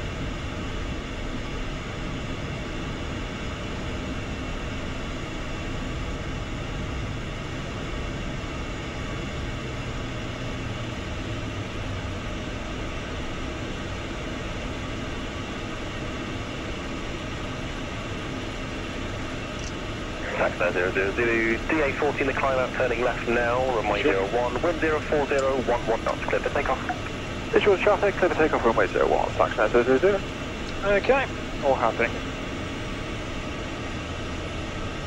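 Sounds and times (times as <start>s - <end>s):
jet engines idling hiss: 19.4s - 32.4s.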